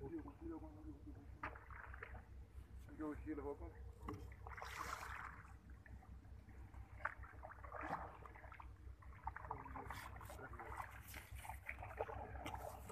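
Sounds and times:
water splashes and drips: 1.2 - 3.4, 4.0 - 12.9.

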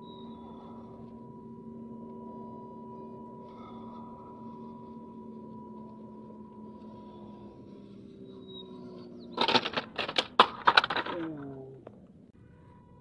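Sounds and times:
electric motor whining: 0.0 - 10.0.

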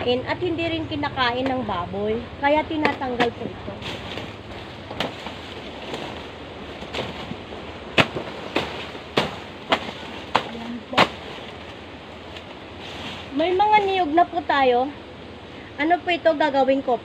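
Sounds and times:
machete chopping plant stalks: 2.8 - 6.2, 6.8 - 11.8.

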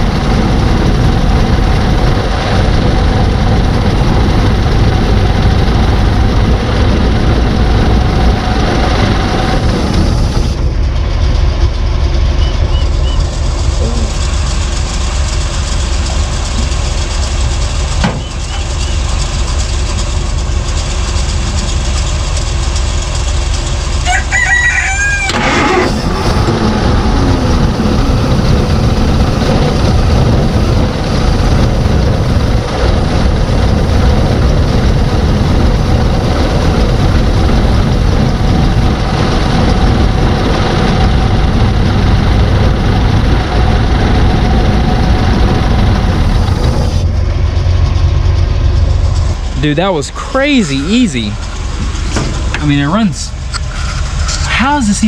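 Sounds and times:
car engine idling: 0.0 - 55.0
rooster crowing: 24.0 - 25.8.

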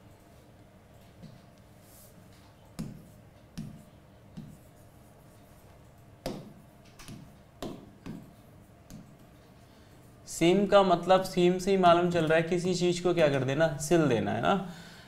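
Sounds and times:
pen tapping on whiteboard: 2.8 - 4.7, 6.2 - 9.2.

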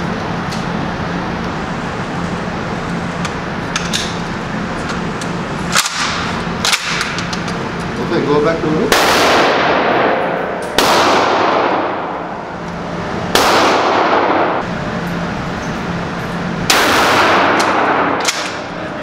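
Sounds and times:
shotgun shots echoing indoors: 8.9 - 12.4, 13.3 - 14.6, 16.7 - 18.7.

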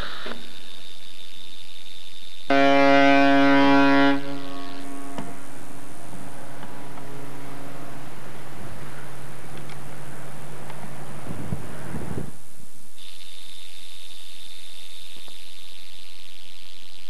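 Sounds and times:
ship's horn blast: 2.5 - 9.5.

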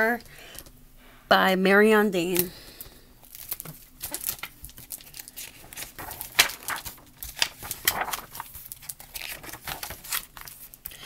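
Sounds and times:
book pages turning: 3.2 - 11.0.

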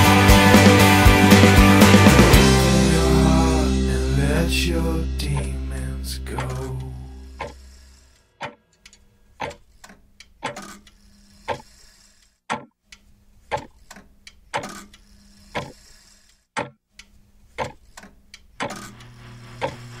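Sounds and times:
faint low drone: 2.1 - 7.8
clock ticking: 4.8 - 7.6, 9.4 - 9.6, 12.5 - 15.8, 16.6 - 17.8.

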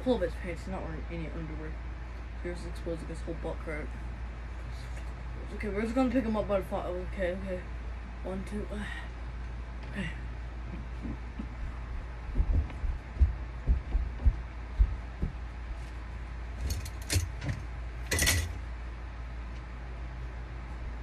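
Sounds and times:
footsteps thudding on floor: 10.7 - 15.8.

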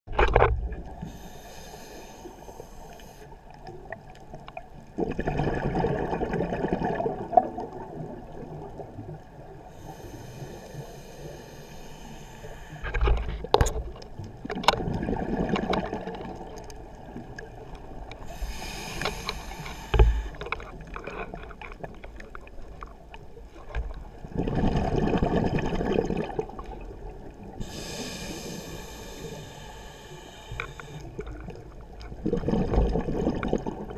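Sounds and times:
diver breathing through regulator: 1.0 - 3.4, 9.7 - 13.2, 18.2 - 20.6, 27.6 - 31.4
bubbles gurgling: 5.0 - 9.2, 14.7 - 16.6, 24.2 - 27.3, 31.2 - 33.9.

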